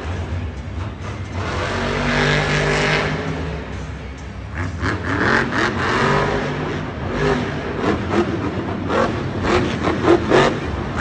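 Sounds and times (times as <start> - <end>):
truck engine revving: 0.0 - 11.0.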